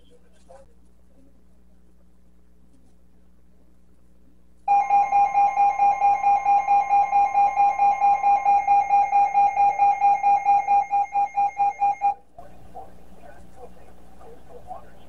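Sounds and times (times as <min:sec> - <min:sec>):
shrill pulsing alarm beep: 0:04.7 - 0:12.2.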